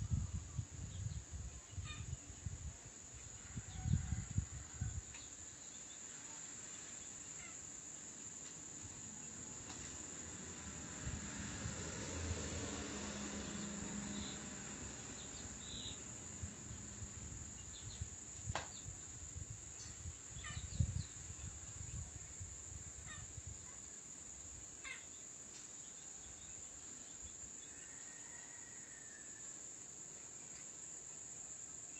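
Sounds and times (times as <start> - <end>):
insect trilling: 24.7 - 25.3.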